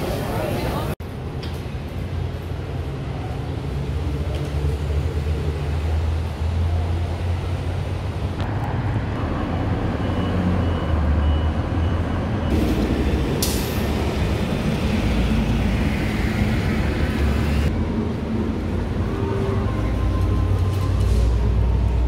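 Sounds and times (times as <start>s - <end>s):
bus engine rumbling: 0.0s - 22.0s
street traffic: 0.0s - 22.0s
air brakes hissing: 12.5s - 14.0s.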